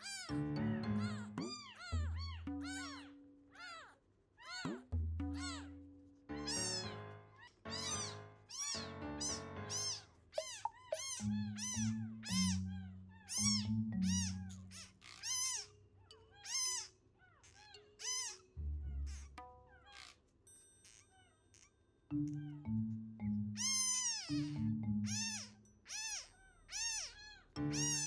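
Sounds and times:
kitten mewing: 0:07.7 - 0:12.6.

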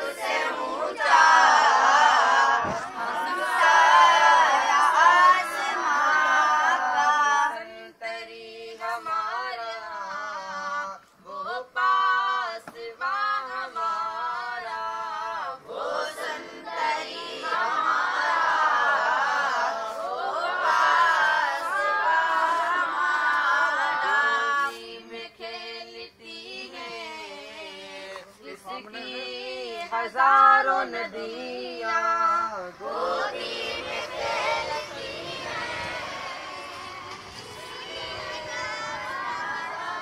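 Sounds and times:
boys chanting in unison: 0:00.0 - 0:09.1, 0:13.7 - 0:25.7, 0:29.8 - 0:40.0.

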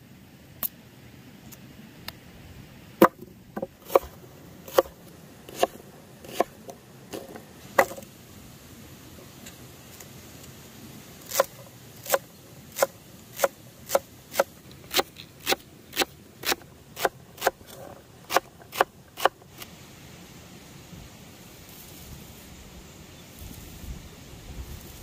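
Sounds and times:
knife chopping on wooden board: 0:03.0 - 0:08.0.

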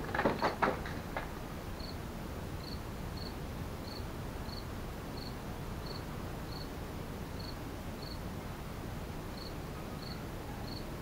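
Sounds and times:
steady background hiss: 0:00.0 - 0:11.0
cricket chirping: 0:01.8 - 0:02.0, 0:02.6 - 0:06.7, 0:07.4 - 0:08.2, 0:09.4 - 0:10.9.

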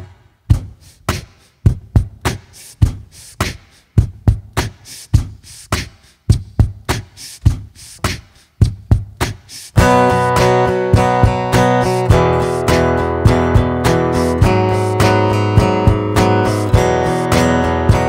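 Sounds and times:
kick drum thumps: 0:00.0 - 0:03.1, 0:04.0 - 0:05.4, 0:06.3 - 0:07.8, 0:08.6 - 0:10.0, 0:10.9 - 0:12.2, 0:15.5 - 0:17.0.

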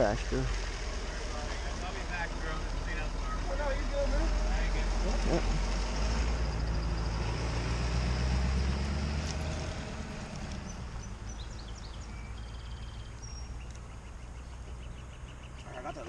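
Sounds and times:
truck engine pulling away: 0:00.0 - 0:15.4
high bird chirps: 0:10.6 - 0:16.0.

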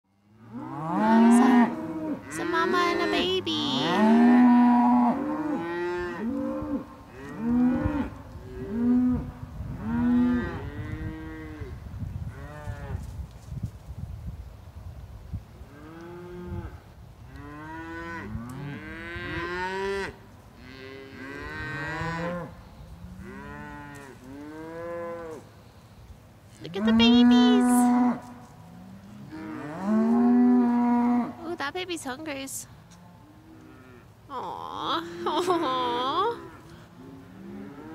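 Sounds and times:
cattle mooing: 0:00.4 - 0:09.3, 0:26.7 - 0:28.3.

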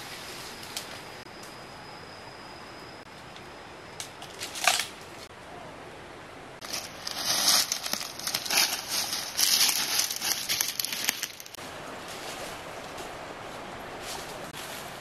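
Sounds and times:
dry leaves crackling and rustling: 0:06.6 - 0:13.0.

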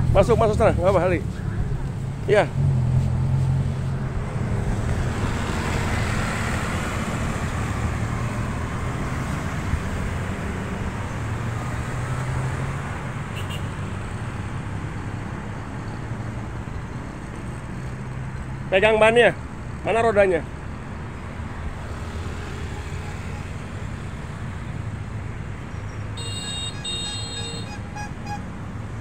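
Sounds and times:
road traffic passing: 0:00.0 - 0:29.0.

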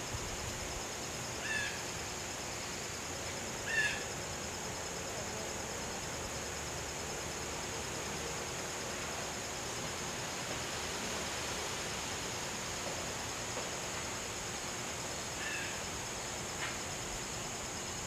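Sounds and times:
high insect drone: 0:00.0 - 0:18.0.

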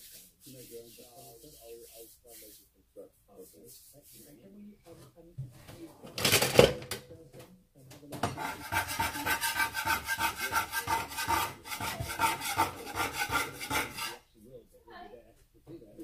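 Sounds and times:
spatula scraping wooden board: 0:08.3 - 0:14.2.

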